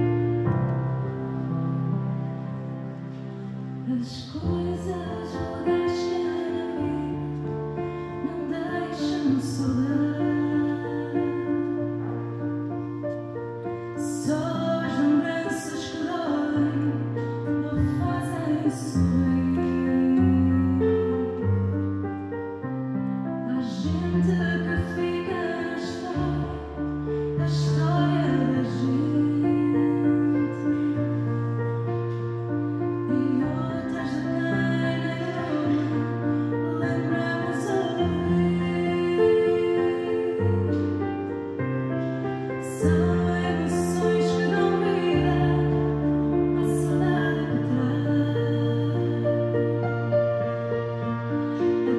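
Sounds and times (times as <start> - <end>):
digital piano chords: 0.0 - 51.9
low instrumental accompaniment: 0.0 - 51.9
woman singing: 3.8 - 7.5, 8.1 - 11.8, 14.0 - 21.8, 23.4 - 31.0, 33.0 - 41.0, 42.6 - 49.9.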